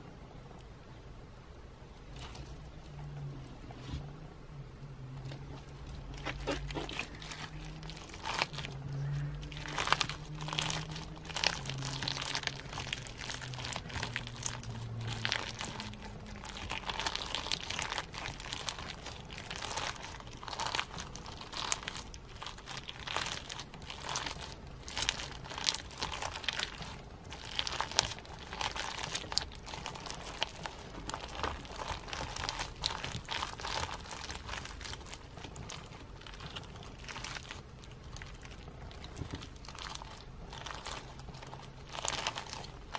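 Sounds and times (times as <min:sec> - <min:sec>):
low hum: 0:00.0 - 0:42.9
slime with sequins crackling: 0:05.2 - 0:42.9.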